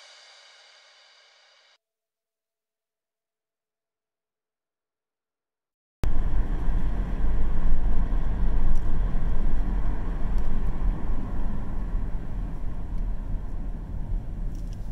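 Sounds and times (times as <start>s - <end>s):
car road and engine rumble: 6.0s - 14.9s.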